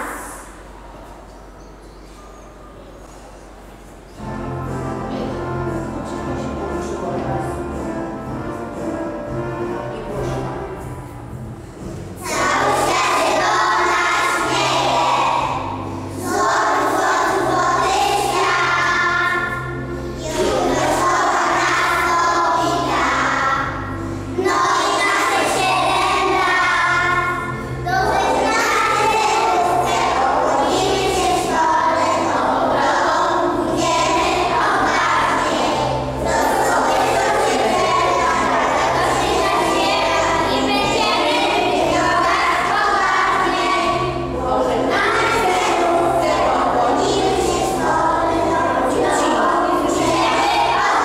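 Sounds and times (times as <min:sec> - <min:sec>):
musical accompaniment: 0:00.0 - 0:51.0
children singing together: 0:12.2 - 0:51.0.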